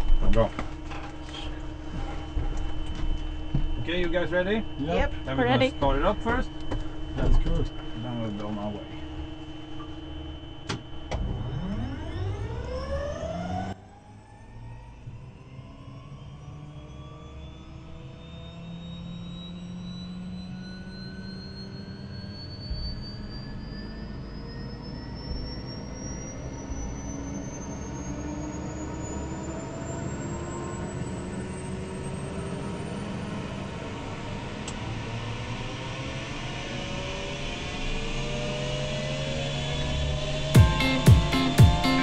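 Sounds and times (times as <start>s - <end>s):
helicopter engine starting up: 0.0s - 42.0s
thump: 10.7s - 11.5s.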